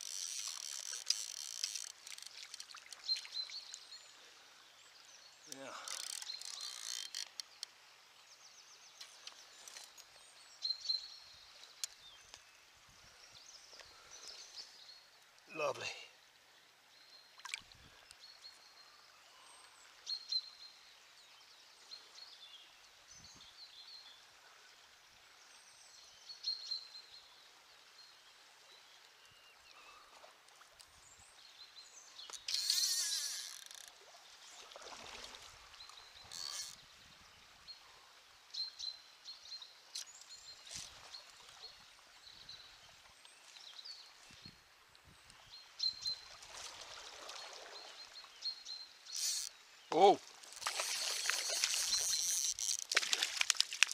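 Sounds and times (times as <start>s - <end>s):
river flowing: 0.0s - 23.1s, 24.1s - 53.9s
small birds chirping: 47.3s - 53.9s.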